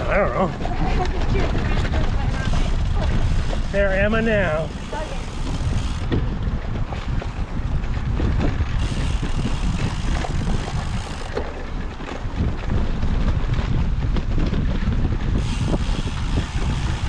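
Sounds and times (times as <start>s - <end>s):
bike ticks and rattles: 0.0s - 17.0s
low rumble of bike riding: 0.0s - 17.0s
wind rushing over microphone: 0.0s - 17.0s.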